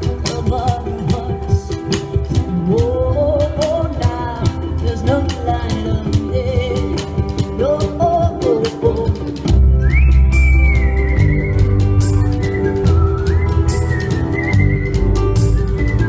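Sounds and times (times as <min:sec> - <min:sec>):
person singing: 0:00.0 - 0:09.7
strummed ukulele: 0:00.0 - 0:16.0.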